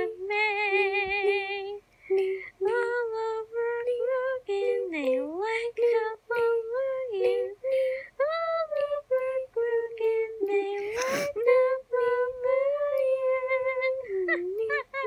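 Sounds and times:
high voice singing wordless tune: 0:00.0 - 0:15.0.

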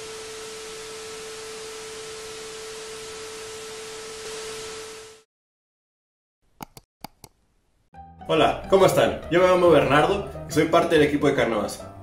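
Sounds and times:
tv static hiss: 0:00.0 - 0:05.2.

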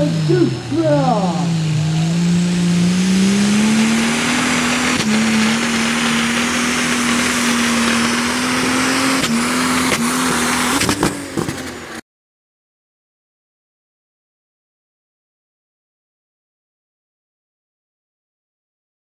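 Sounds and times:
tractor engine at full power: 0:00.0 - 0:12.0.

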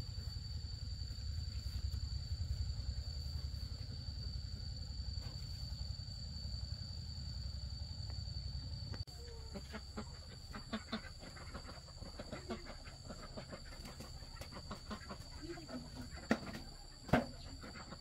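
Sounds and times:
low rumble: 0:00.0 - 0:09.0
high insect drone: 0:00.0 - 0:18.0
chickens clucking: 0:09.2 - 0:18.0.

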